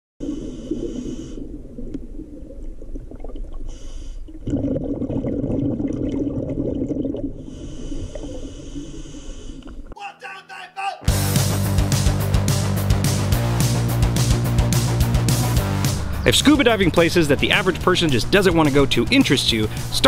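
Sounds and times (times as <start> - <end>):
diver breathing through regulator: 0.2 - 1.6, 3.6 - 4.4, 7.4 - 9.9, 19.7 - 20.0
bubbling exhales: 0.2 - 9.9.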